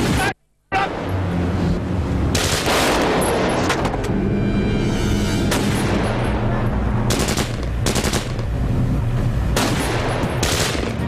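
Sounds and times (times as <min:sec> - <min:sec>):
steady low drone: 0:00.6 - 0:11.0
gunfire bursts: 0:02.3 - 0:03.3, 0:07.1 - 0:08.4, 0:09.6 - 0:11.0.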